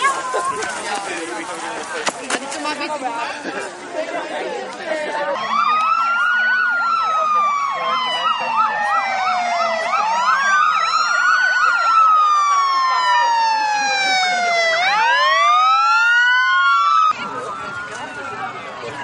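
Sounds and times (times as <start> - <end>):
ambulance siren wailing: 5.2 - 19.0
fast warbling siren: 5.3 - 19.0.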